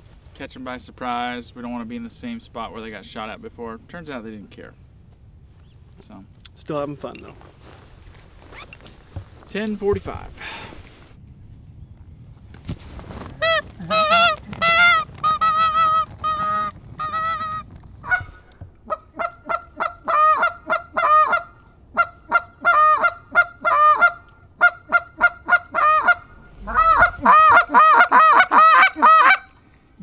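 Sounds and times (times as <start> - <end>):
goose call honks and clucks: 13.4 - 29.6.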